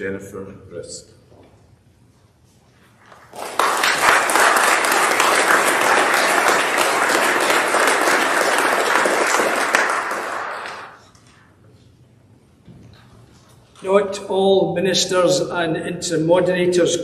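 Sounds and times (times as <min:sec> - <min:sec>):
congregation applauding: 0:03.0 - 0:11.0.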